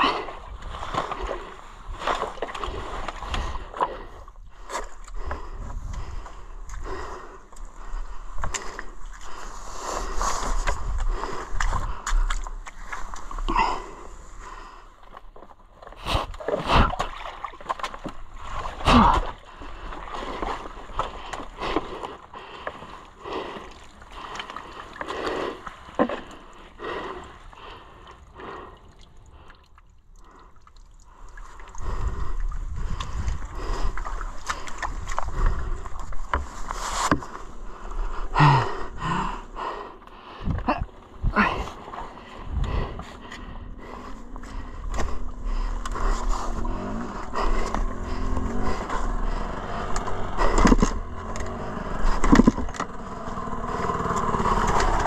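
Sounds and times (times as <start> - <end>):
person breathing hard: 0.0 - 17.2, 18.5 - 52.9
muddy water splashing: 0.0 - 55.0
dirt bike engine: 43.7 - 55.0.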